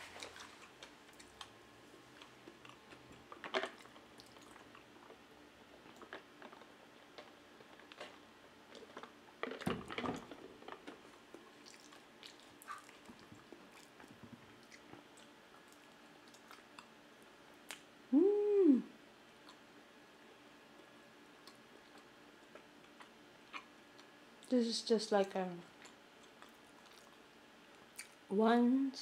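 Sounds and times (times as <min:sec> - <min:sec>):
quiet chewing: 0:00.0 - 0:17.9, 0:19.4 - 0:19.8, 0:20.7 - 0:24.5, 0:25.6 - 0:28.3
person humming: 0:18.1 - 0:19.0.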